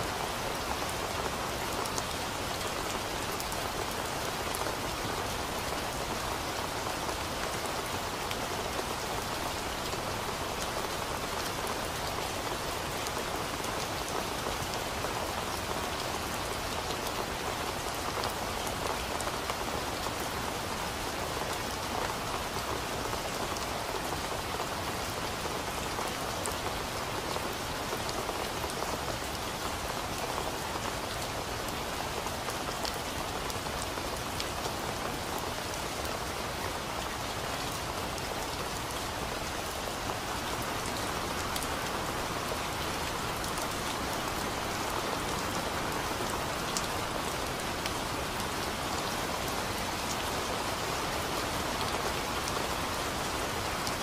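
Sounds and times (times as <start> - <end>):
rain falling on leaves: 0.0 - 54.0.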